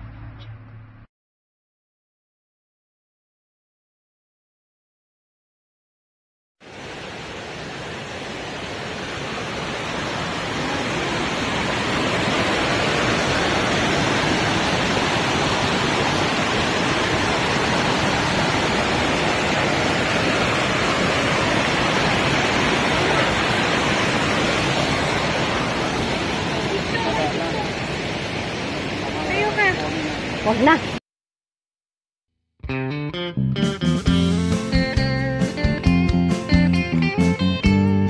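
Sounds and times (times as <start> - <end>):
water rushing over rocks: 6.6 - 31.0.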